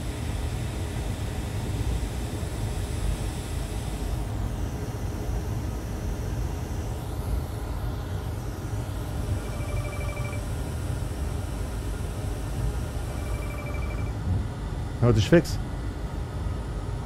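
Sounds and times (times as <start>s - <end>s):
telephone ringing faintly: 9.4s - 10.5s, 13.1s - 14.2s.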